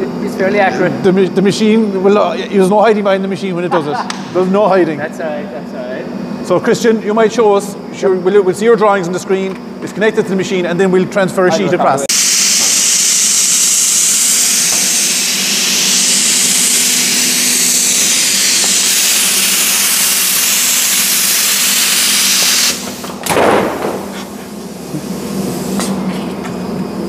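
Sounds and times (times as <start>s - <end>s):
compressed air hissing: 12.1s - 26.7s
low machine hum: 22.4s - 27.0s.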